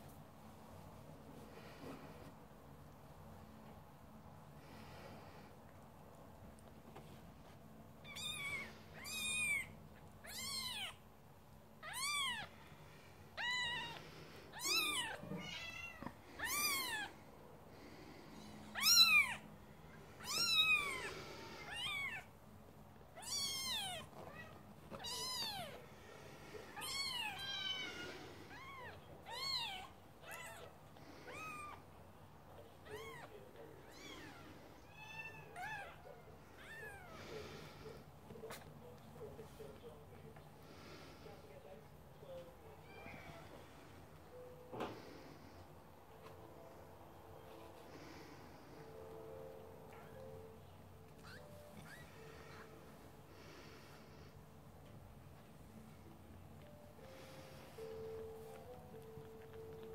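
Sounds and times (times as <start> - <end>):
kittens mewing: 8.0 - 11.0, 11.8 - 12.7, 13.4 - 17.2, 18.7 - 19.5, 20.2 - 22.3.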